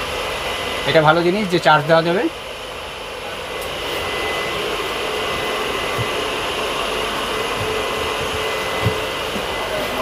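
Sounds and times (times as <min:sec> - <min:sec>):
air conditioning whirring: 0:00.0 - 0:10.0
soft knocks: 0:05.4 - 0:06.4, 0:07.5 - 0:09.5.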